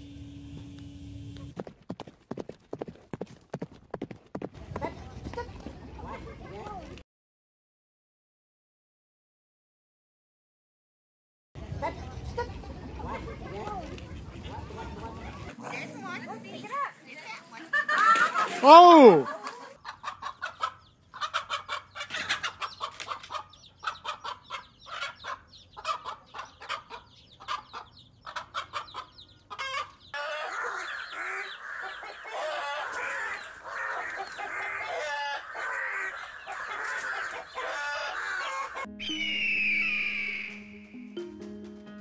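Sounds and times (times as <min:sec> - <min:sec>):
chickens clucking: 0:19.3 - 0:38.9
music: 0:38.9 - 0:42.0.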